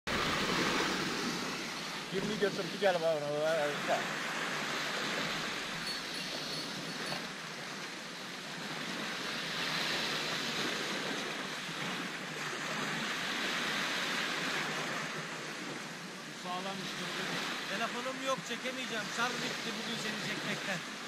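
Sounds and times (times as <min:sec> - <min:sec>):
waves breaking on sandy beach: 0:00.1 - 0:21.0.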